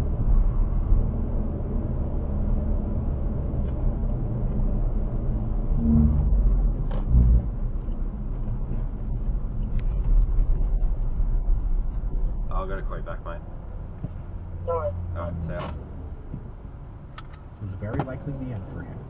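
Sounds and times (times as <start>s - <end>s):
car road and engine rumble: 0.0s - 19.0s.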